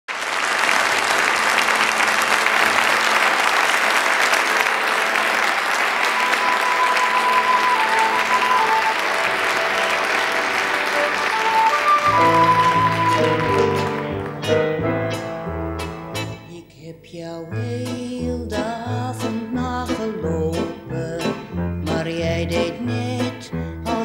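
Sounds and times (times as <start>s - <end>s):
audience applauding: 0.1s - 15.3s
band playing music: 6.0s - 16.6s, 17.6s - 24.0s.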